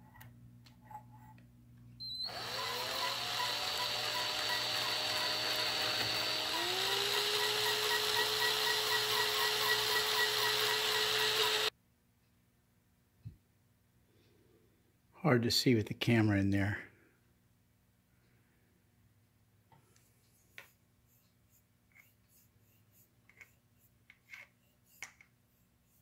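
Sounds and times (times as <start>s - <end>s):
electric drill motor whine: 2.0s - 11.7s.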